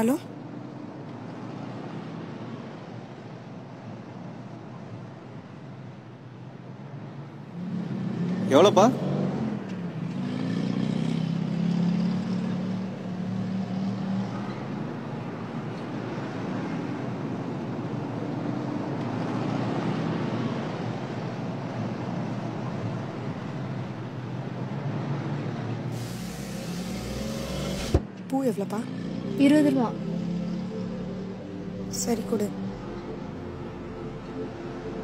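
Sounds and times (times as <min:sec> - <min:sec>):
road traffic hum: 0:00.0 - 0:35.0
car engine drone: 0:25.6 - 0:35.0.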